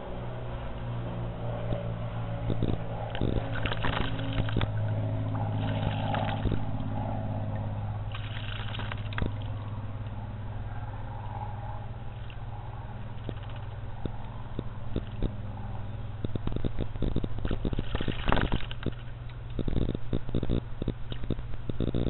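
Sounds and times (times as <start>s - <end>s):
steady low hum: 0.0s - 22.0s
bird splashing in water: 3.2s - 4.8s, 5.4s - 6.9s, 8.1s - 9.8s.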